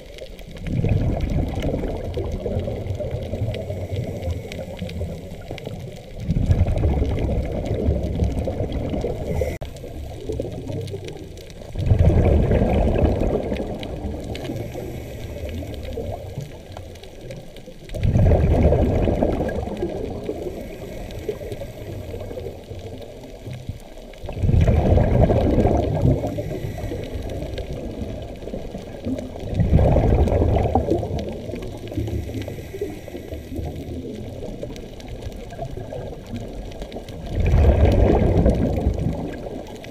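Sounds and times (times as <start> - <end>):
exhaled bubbles rushing: 0.0 - 39.9
diver breathing through regulator: 9.0 - 9.8, 14.3 - 16.2, 20.3 - 22.5, 26.0 - 27.9, 32.0 - 34.0.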